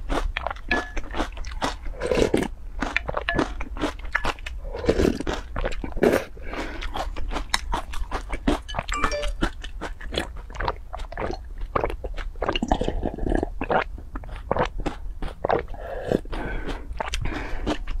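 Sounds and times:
crunchy chewing: 0:00.0 - 0:18.0
wet slurping gulps: 0:10.1 - 0:18.0.

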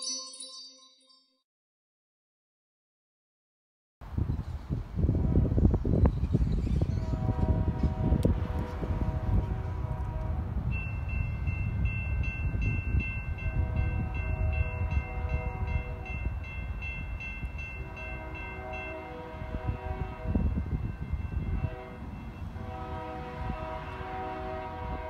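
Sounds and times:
train air horn blasts: 0:07.1 - 0:10.7, 0:13.4 - 0:16.2, 0:17.8 - 0:25.0.

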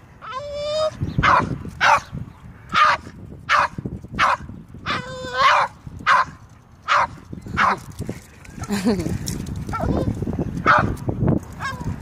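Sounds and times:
dog barking: 0:10.7 - 0:10.9.

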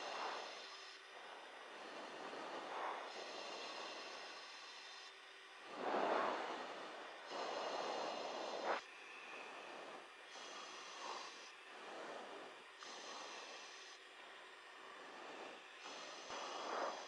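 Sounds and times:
headset microphone hiss and breath: 0:00.0 - 0:17.0.

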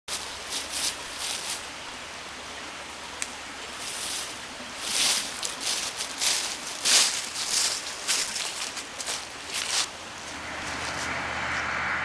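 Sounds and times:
footsteps crunching dry leaves: 0:00.1 - 0:01.9, 0:03.7 - 0:11.7
steady background hiss: 0:00.1 - 0:11.2.

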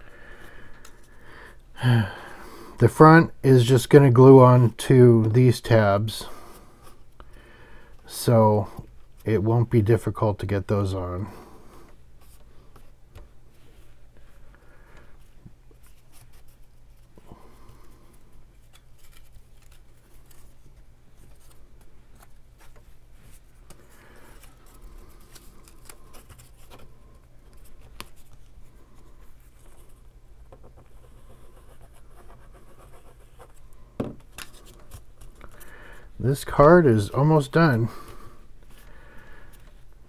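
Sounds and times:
cardstock rustling and scraping: 0:18.2 - 0:30.0.

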